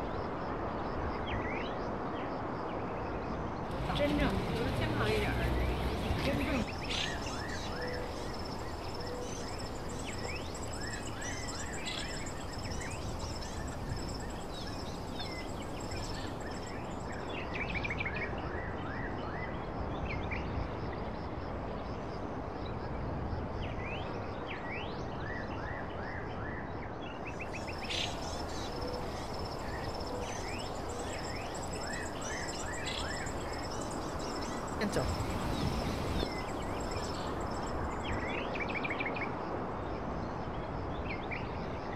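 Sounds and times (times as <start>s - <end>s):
small birds chirping: 3.6s - 17.9s, 27.2s - 38.9s.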